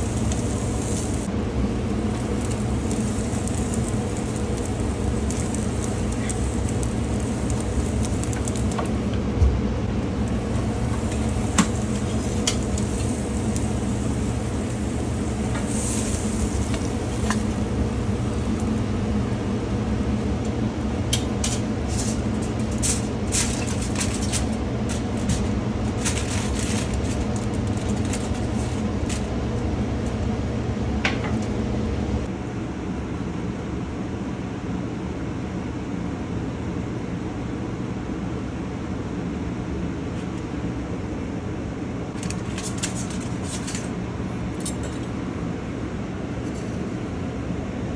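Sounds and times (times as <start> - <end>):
charcoal grill sizzling: 0.0 - 9.2, 9.8 - 29.6, 42.1 - 43.9
coals crackling and popping: 0.0 - 9.2, 9.9 - 29.4.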